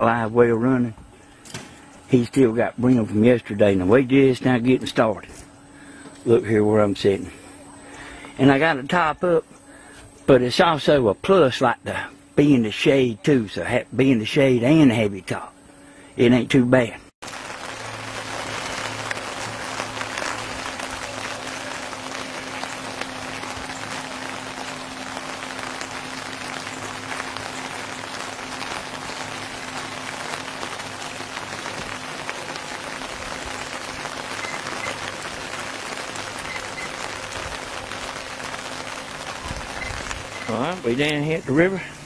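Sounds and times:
rain falling on water: 17.2s - 42.0s.

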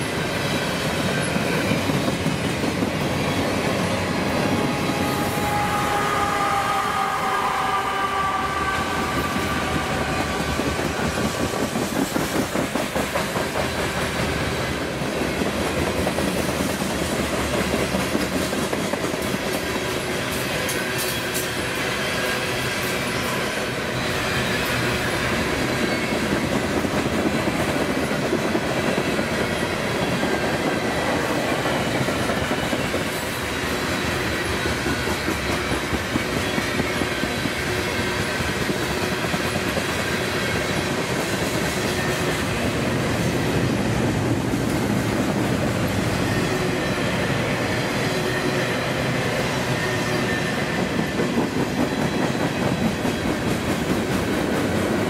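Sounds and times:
train wheels clattering over rails: 0.0s - 7.1s, 8.4s - 55.0s.

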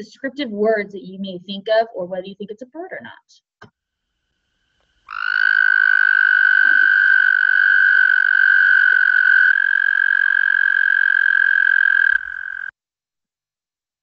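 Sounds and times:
toad trilling: 5.0s - 12.7s.

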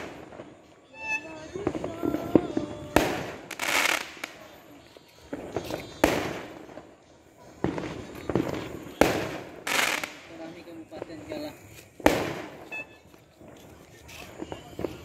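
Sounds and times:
firework bangs: 0.0s - 4.5s, 5.3s - 7.0s, 7.6s - 12.8s
firework crackling: 0.0s - 15.0s
small firework pops: 1.6s - 6.8s, 7.6s - 10.3s, 11.0s - 15.0s.

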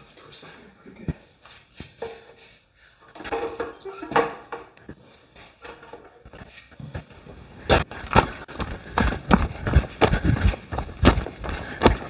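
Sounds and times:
footsteps on a hard floor: 3.2s - 12.0s.

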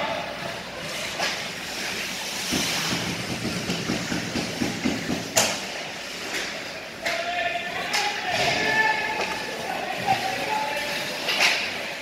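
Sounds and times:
skates scraping ice: 0.6s - 7.0s
hockey sticks clattering: 0.8s - 12.0s.

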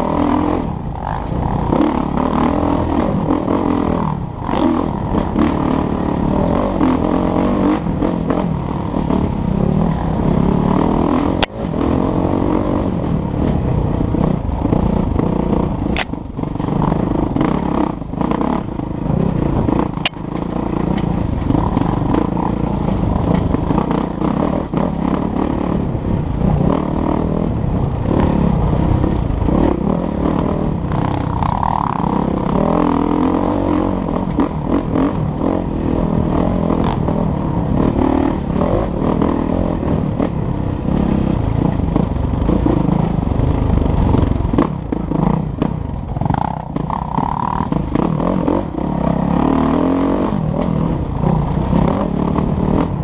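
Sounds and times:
dirt bike engine revving: 0.0s - 13.4s
sharp clicks: 15.9s - 16.2s.

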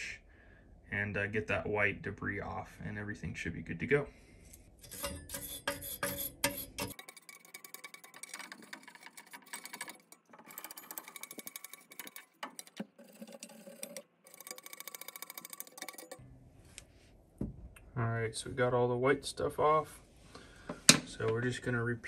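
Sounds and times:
wire brush scratching metal rod: 4.8s - 16.2s.

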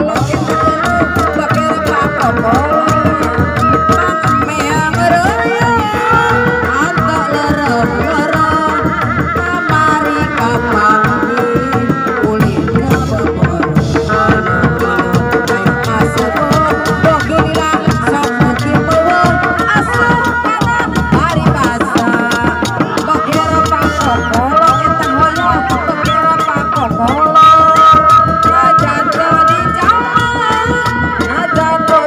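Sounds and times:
hand drums in fast rhythm: 0.0s - 32.0s
high wavering melody: 14.9s - 32.0s.

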